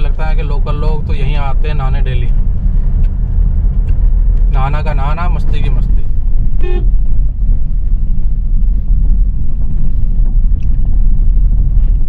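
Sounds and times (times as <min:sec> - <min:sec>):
car engine and tyres rumbling: 0:00.0 - 0:12.0
car horn toot: 0:06.6 - 0:07.0.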